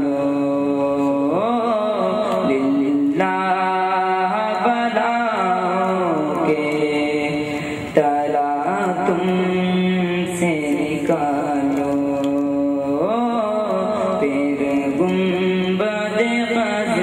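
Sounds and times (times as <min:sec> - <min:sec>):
man singing unaccompanied: 0:00.0 - 0:17.0.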